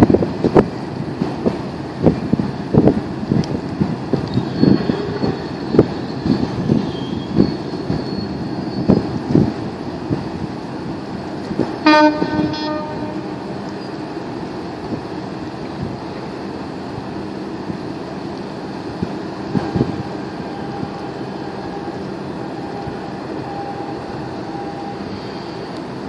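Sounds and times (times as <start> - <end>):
wind on microphone: 0.0 - 13.6, 18.9 - 21.2.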